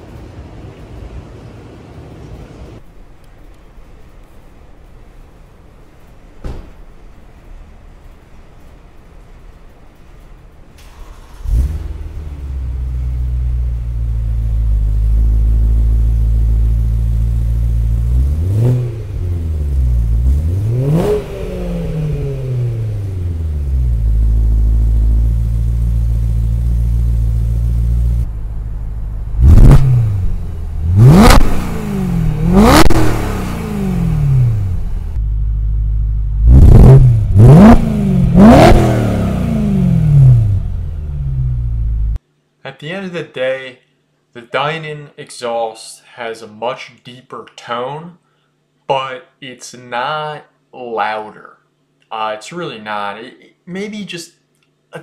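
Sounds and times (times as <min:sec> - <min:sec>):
car engine starting and idling: 0:02.8 - 0:42.2
car engine revving: 0:10.8 - 0:42.2.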